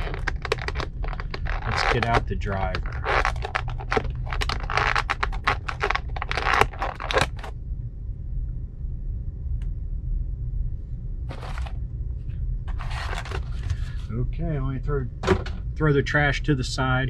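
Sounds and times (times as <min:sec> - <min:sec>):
plastic bags crinkling: 0:00.0 - 0:07.5, 0:11.3 - 0:11.7, 0:12.7 - 0:14.0
faint steady hum: 0:00.0 - 0:17.0.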